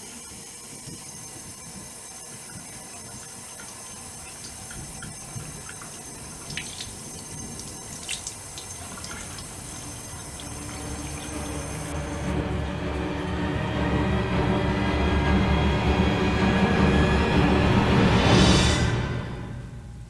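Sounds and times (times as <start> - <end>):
bathroom faucet running: 0.0 - 13.0
water splashing on face: 2.4 - 12.0.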